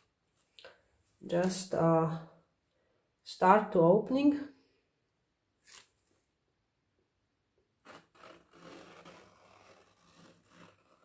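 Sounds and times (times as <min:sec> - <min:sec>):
faint rubbing and scraping: 0:07.8 - 0:11.0.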